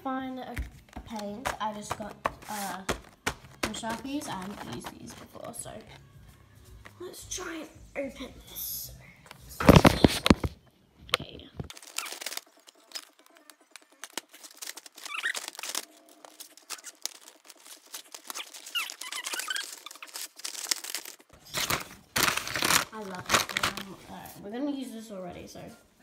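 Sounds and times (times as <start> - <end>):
blister pack crinkling and clicking: 0.9 - 5.5, 11.2 - 24.0.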